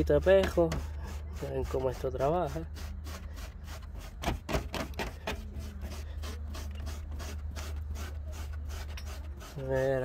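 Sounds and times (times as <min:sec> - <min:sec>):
rubber brush scrubbing carpet: 0:00.8 - 0:04.2.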